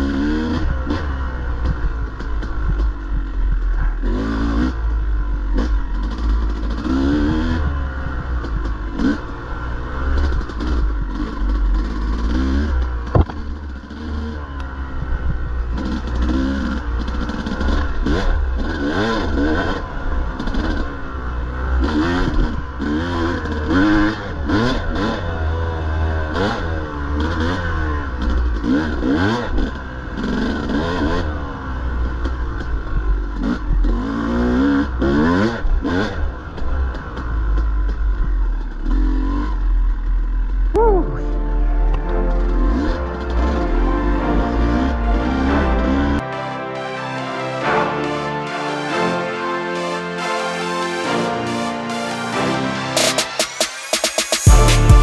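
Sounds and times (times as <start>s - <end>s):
dirt bike engine revving: 0.0s - 46.4s
sharp knock: 13.1s - 13.5s.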